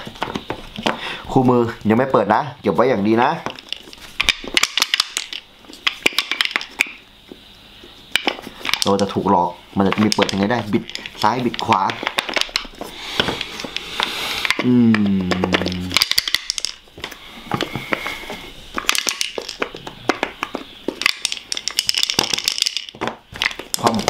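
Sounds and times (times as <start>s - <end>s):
man humming: 14.5s - 16.1s.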